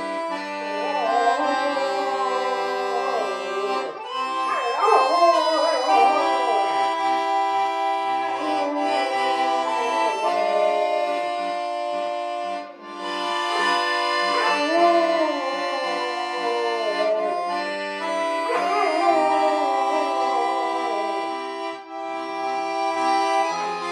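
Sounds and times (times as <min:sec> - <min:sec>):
accordion playing chords: 0:00.0 - 0:23.9
dog howling: 0:00.8 - 0:07.2, 0:08.1 - 0:11.4, 0:13.5 - 0:21.5.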